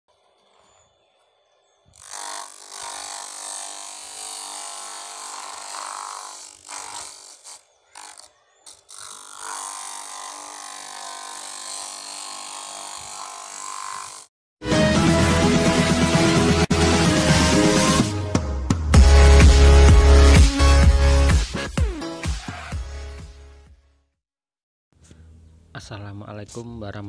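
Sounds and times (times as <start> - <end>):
sanding disc grinding wood: 2.0 - 14.3.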